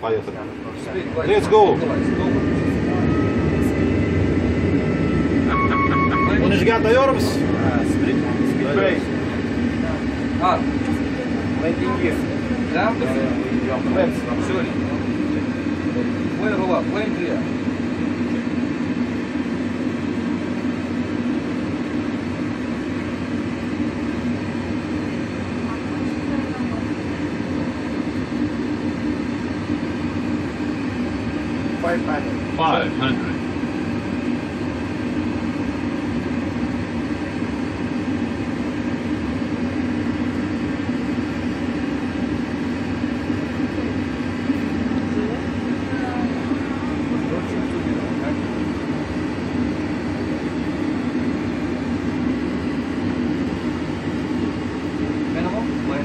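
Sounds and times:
cockpit rumble and hum: 0:00.0 - 0:56.0.

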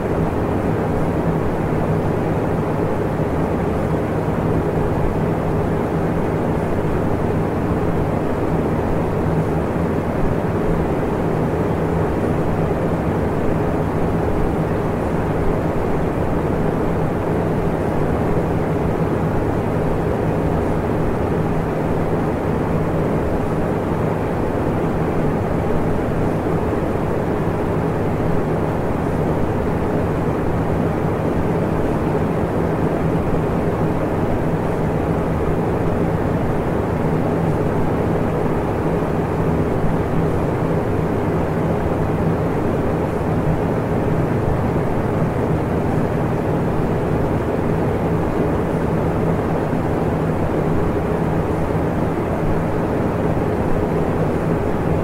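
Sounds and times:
steady droning noise with hum: 0:00.0 - 0:55.0.

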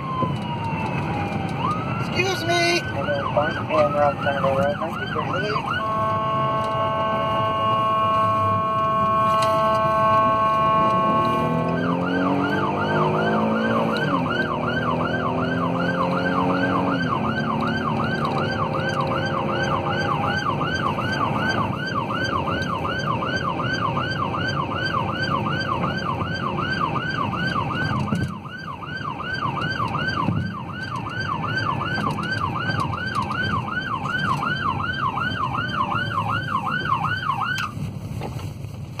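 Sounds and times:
police siren yelping: 0:00.0 - 0:37.8
steady horn tone: 0:05.3 - 0:14.7
car engine accelerating: 0:08.6 - 0:37.2.

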